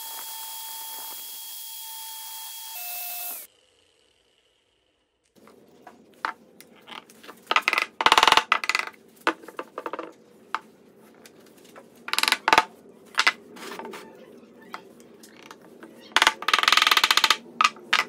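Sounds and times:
wooden sticks clicking and clattering: 12.1 - 14.0, 15.0 - 18.0.

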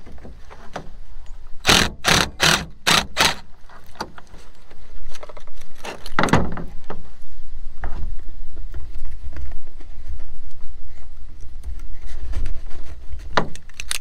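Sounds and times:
cordless drill driving screw: 1.6 - 3.5.

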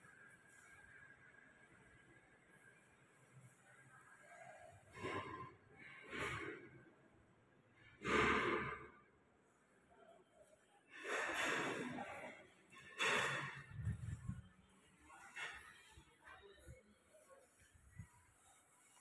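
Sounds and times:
person breathing out: 13.0 - 14.4.

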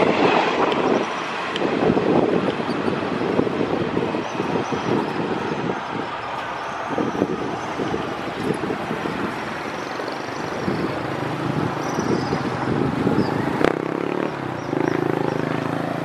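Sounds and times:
motorcycle engines running: 0.0 - 16.0
steady engine drone: 0.0 - 16.0.

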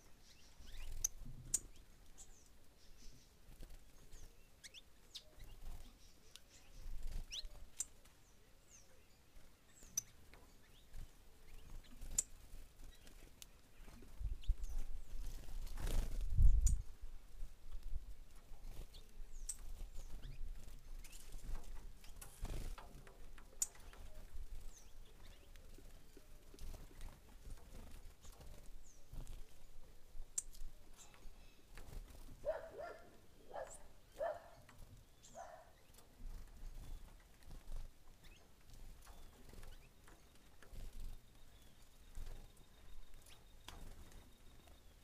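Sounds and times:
bird wingbeats: 10.8 - 16.8, 17.8 - 29.7.

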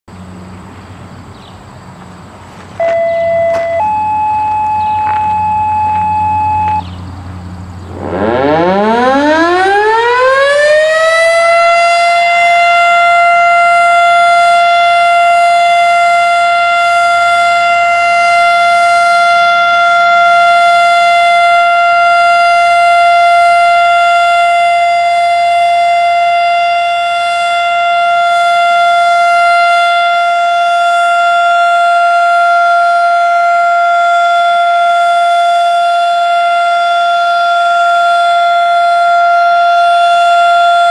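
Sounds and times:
fire siren wailing: 2.8 - 6.9, 7.8 - 40.9
short steady beep: 2.8 - 6.9.

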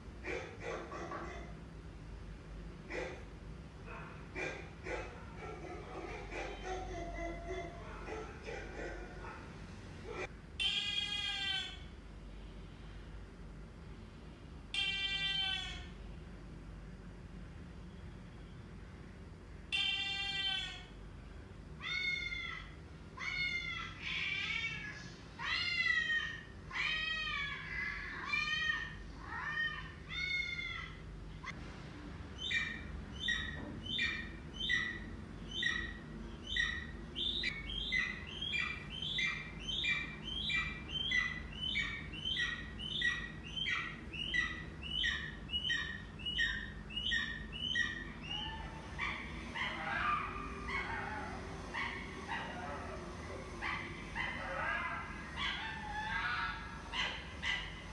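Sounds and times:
cat meowing: 10.6 - 11.9, 14.8 - 16.0, 19.7 - 20.9, 21.8 - 31.0.

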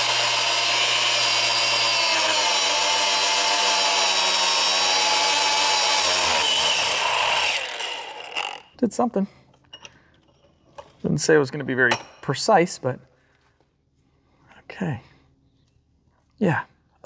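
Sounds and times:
cut-off tool grinding metal: 0.0 - 8.8.

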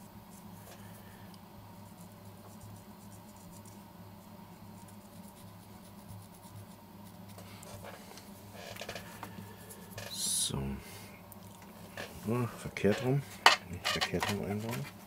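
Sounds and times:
steady low hum: 0.0 - 15.0
wooden stick scratching and ticking: 1.8 - 10.2, 11.4 - 15.0.

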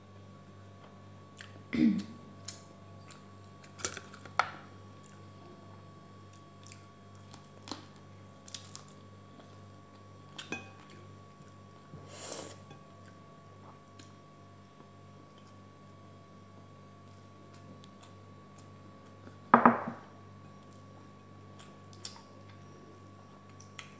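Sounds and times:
chewing and mouth sounds: 6.3 - 7.9, 23.4 - 23.9.

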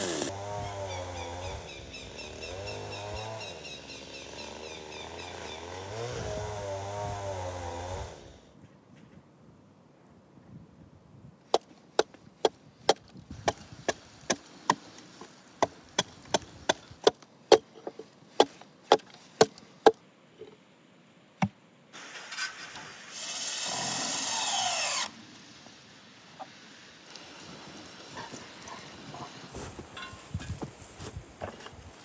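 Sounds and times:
wood splintering: 0.0 - 0.4, 11.5 - 20.0, 22.2 - 25.2
hatchet chopping wood: 11.5 - 14.9, 15.6 - 17.7, 18.4 - 20.0.

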